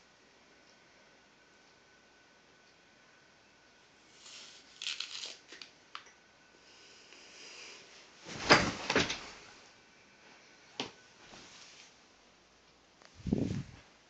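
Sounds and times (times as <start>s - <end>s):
crunching bite into apple: 4.2s - 5.6s
person falling onto floor: 8.3s - 9.3s.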